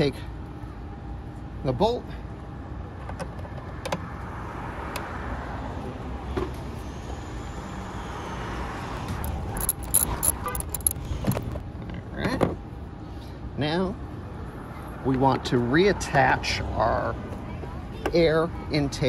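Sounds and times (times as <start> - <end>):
light metallic clicks and clinks: 9.1 - 11.5.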